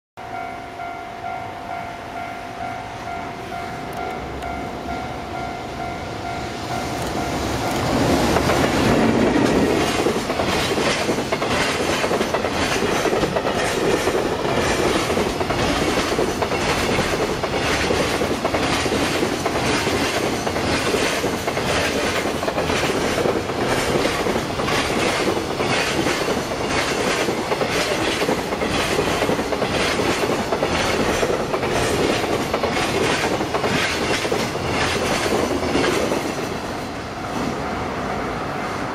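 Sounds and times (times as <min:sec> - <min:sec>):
electric locomotive passing: 0:00.2 - 0:38.9
train wheels clacking over rail joints: 0:07.0 - 0:36.6.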